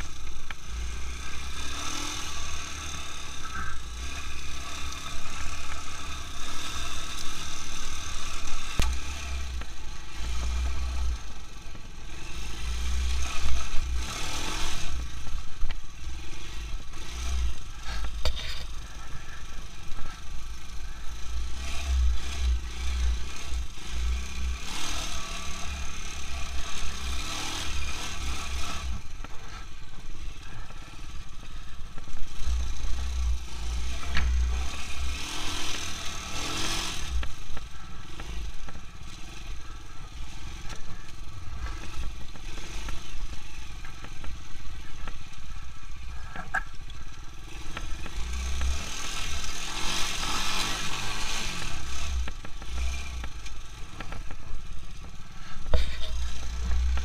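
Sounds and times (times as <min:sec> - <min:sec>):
quad bike engine revving: 0:00.0 - 0:57.0.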